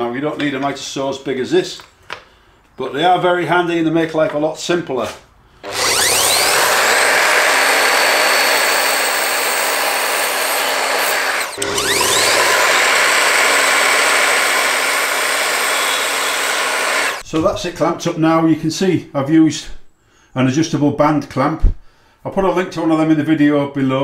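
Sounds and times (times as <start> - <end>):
mitre saw cutting wood: 5.6 - 17.2.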